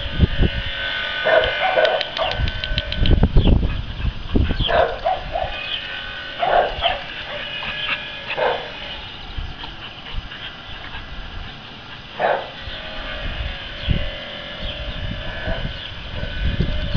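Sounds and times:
low rumble on microphone: 0.0 - 16.9
dog barking: 1.3 - 2.4, 4.6 - 5.6, 6.4 - 7.6, 8.4 - 8.8, 12.2 - 12.6.

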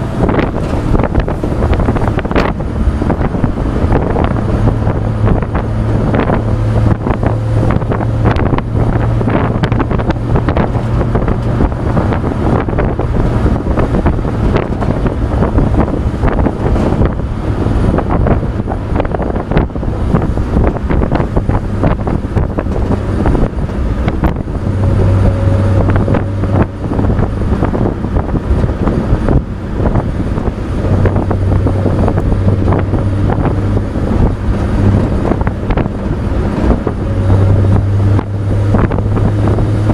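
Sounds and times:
truck engine and road drone: 0.0 - 39.9
wind buffeting microphone: 0.0 - 39.9.

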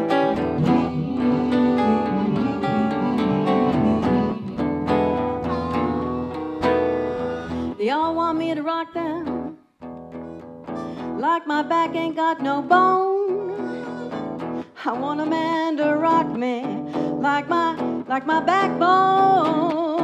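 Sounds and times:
harmonica solo: 0.0 - 8.3, 10.0 - 11.3, 13.3 - 14.7
woman singing with vibrato: 0.0 - 9.6, 11.0 - 20.0
strummed acoustic guitar: 0.0 - 20.0.

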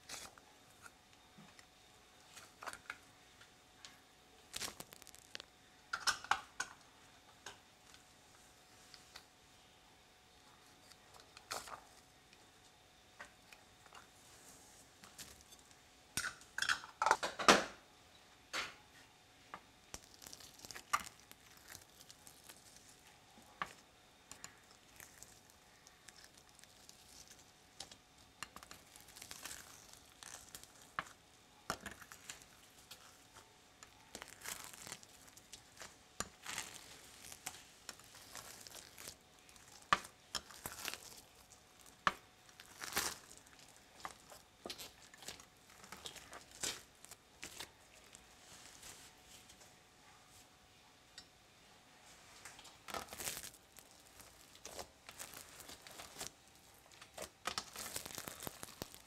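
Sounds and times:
slime crackling and squelching: 4.4 - 6.3, 19.9 - 49.6, 52.6 - 59.0.

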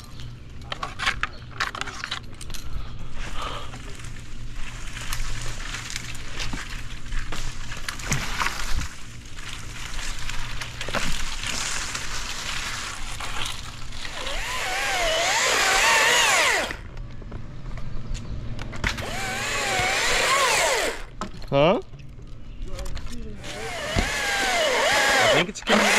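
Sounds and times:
chainsaw cutting wood: 14.1 - 16.8, 18.9 - 21.1, 23.4 - 25.9.

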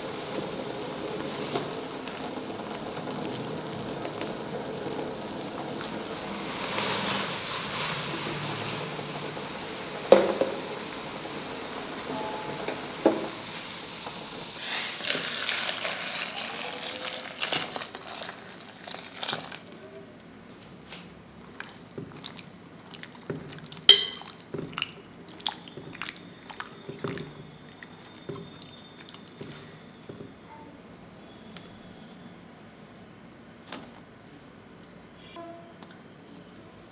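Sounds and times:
liquid boiling in a pot: 0.0 - 30.5
spoon clinking against a steel bowl: 23.9 - 24.4.

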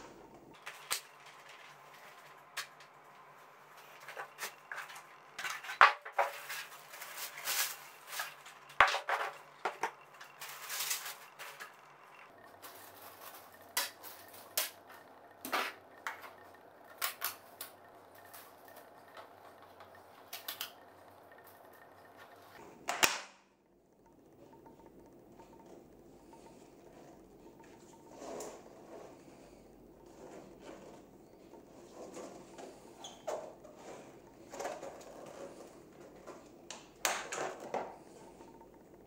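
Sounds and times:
packaging rustling: 3.8 - 15.0
plastic parts clicking and snapping: 12.6 - 22.2, 22.8 - 23.4.

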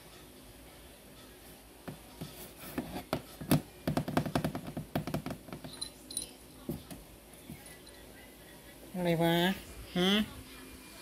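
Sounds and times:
taps and scratches on cardboard box: 2.2 - 5.7
high jingle: 5.7 - 6.4.

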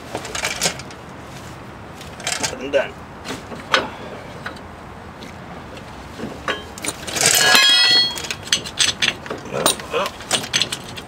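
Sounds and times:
metal tools clattering on asphalt: 0.1 - 1.0, 2.0 - 2.7, 3.4 - 5.4, 6.2 - 11.0
high metallic ringing: 6.5 - 9.0.

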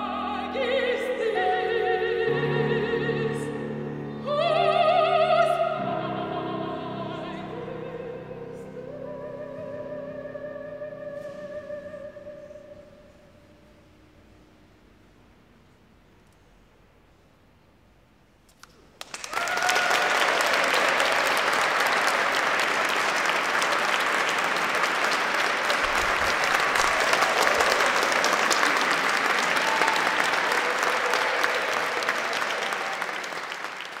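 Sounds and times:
audience applauding: 19.0 - 34.0.

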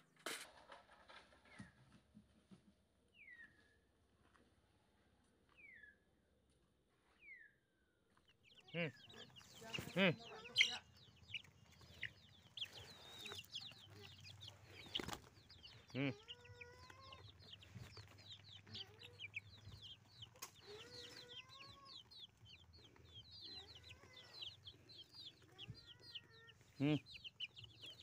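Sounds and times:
chicks peeping: 8.1 - 28.0
lower drawn-out chick calls: 8.5 - 28.0.

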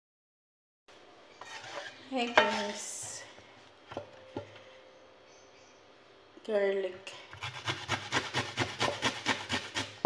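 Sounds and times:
garlic rasping on metal grater: 7.4 - 10.0.

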